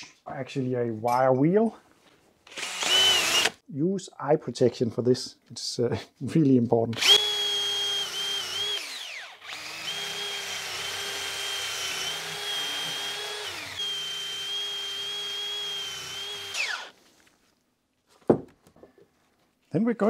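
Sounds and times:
drill spinning wire brush: 2.5s - 3.6s, 7.0s - 17.0s.

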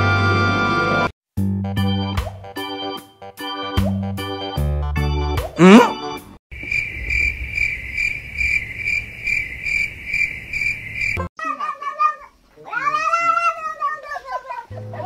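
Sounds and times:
cricket chirping: 6.5s - 11.3s.

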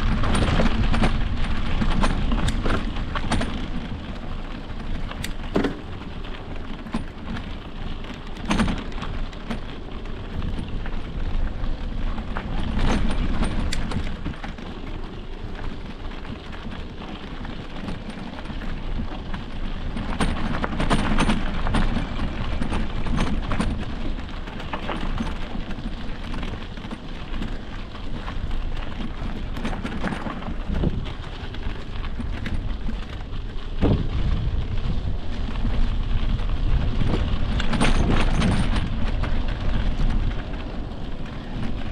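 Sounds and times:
wind on microphone: 0.0s - 7.5s, 27.3s - 41.9s
sharp knocks and rattles: 0.0s - 14.8s, 17.7s - 34.7s, 35.3s - 41.9s
bike tyres on dirt: 0.0s - 41.9s.

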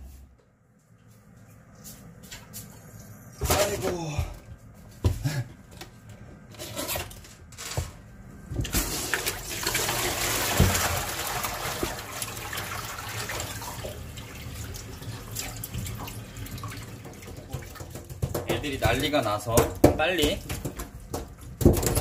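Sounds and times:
water splashing into a sink: 8.6s - 19.2s
heavy thud in a sink: 10.5s - 10.9s.

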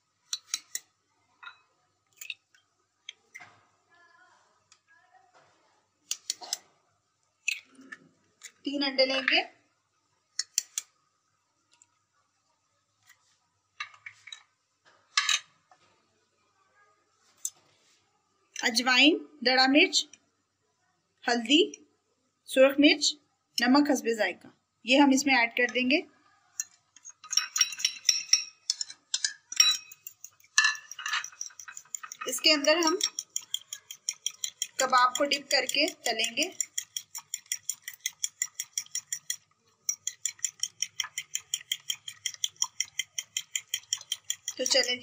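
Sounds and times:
eggs cracking on glass bowl: 27.1s - 45.0s
fork scraping on ceramic plate: 29.7s - 45.0s.

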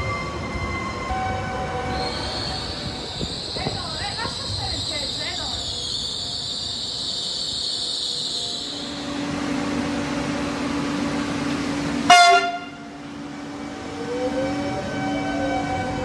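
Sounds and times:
electric train humming: 0.0s - 16.0s
train rising whine: 0.0s - 16.0s
train horn toot: 12.0s - 16.0s.

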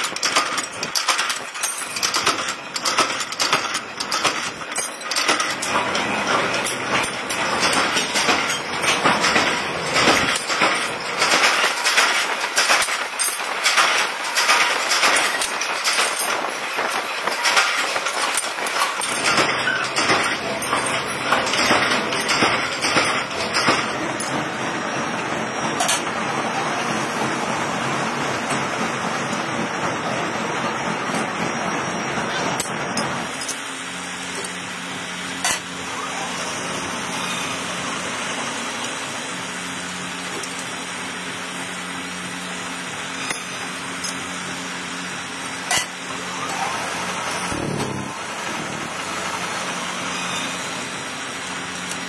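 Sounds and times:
metal parts clicking: 0.0s - 24.3s
machinery clattering: 0.0s - 52.0s
two-tone machine hum: 0.0s - 52.0s.

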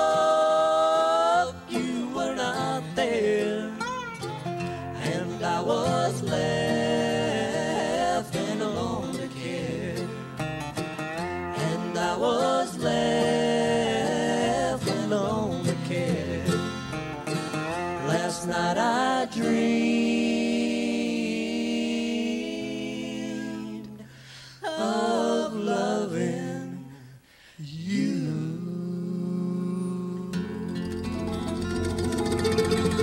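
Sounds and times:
people singing: 0.0s - 10.5s, 11.4s - 16.9s, 17.9s - 31.2s
bluegrass band playing: 0.0s - 19.9s, 30.7s - 33.0s.

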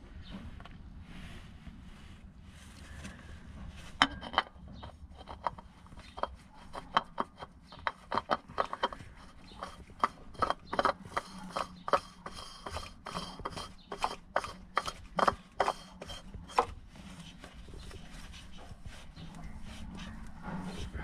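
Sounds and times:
hand tools clicking and tapping: 4.0s - 16.7s.

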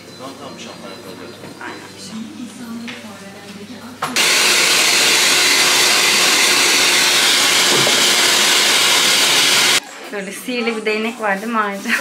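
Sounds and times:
hair dryer blowing: 4.2s - 9.8s.

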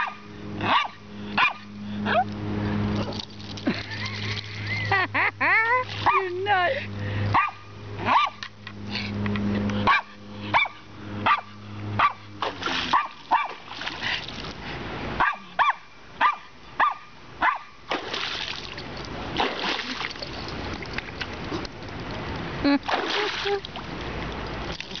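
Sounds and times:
small dog yapping: 7.4s - 8.4s
water splashing: 12.0s - 14.8s, 17.9s - 25.0s.

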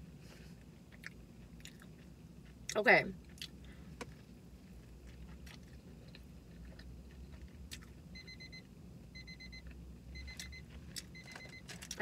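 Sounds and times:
timer alarm beeping: 8.1s - 11.7s.

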